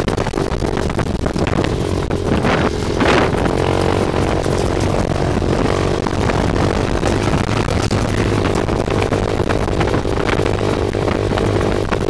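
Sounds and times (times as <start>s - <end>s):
buggy engine running: 0.0s - 12.0s
chassis clatter and rattles: 0.0s - 12.0s.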